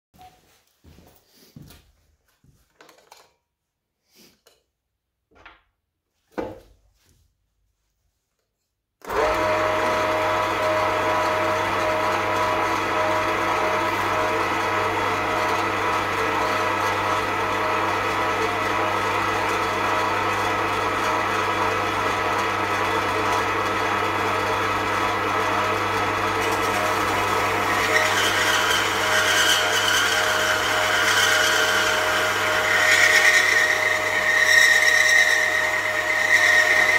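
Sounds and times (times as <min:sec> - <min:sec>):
bandsaw motor humming: 0:09.0 - 0:36.9.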